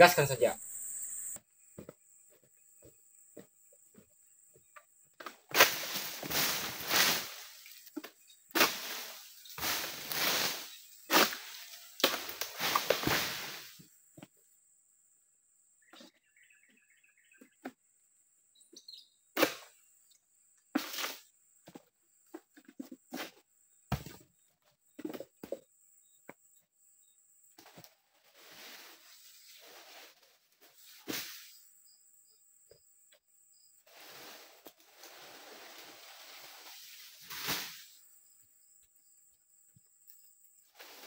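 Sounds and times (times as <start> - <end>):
rustling leaves: 5.4 - 13.9, 27.6 - 31.6, 33.8 - 38.1, 40.7 - 41.0
bird chirps: 18.5 - 19.2.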